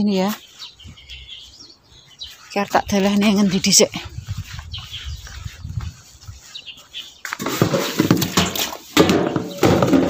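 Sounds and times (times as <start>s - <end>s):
low rumble on microphone: 3.9s - 6.4s
leaves rustling and knocking: 7.2s - 10.0s.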